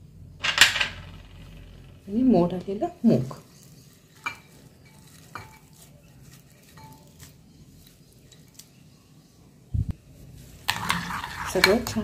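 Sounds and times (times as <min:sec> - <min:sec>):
spoon stirring in glass bowl: 0:03.5 - 0:08.8, 0:10.4 - 0:12.0.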